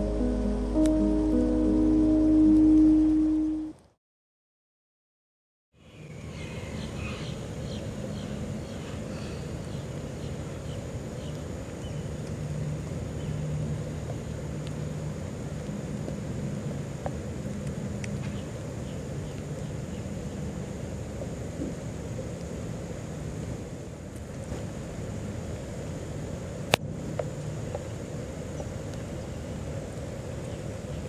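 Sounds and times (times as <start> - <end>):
distant engine drone: 0.0 - 3.7.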